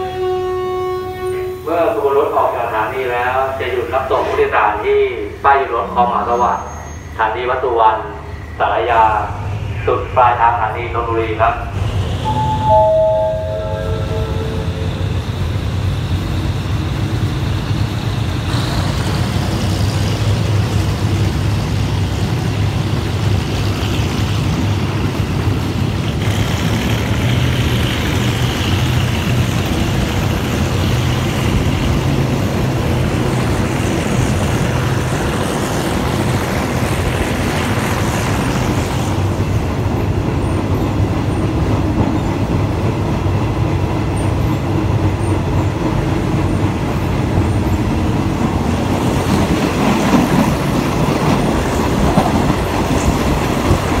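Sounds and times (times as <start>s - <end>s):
train wheels rattling on rails: 0.0s - 54.0s.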